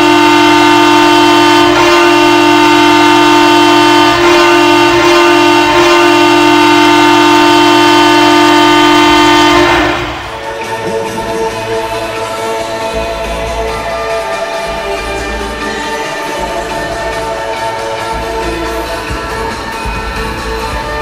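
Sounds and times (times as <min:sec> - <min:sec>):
arena goal horn blast: 0:00.0 - 0:10.8.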